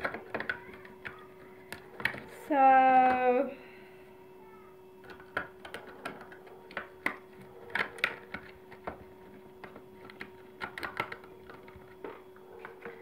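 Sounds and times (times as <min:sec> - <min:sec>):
tape roll clicks and crackles: 0:00.0 - 0:03.4, 0:05.0 - 0:13.0.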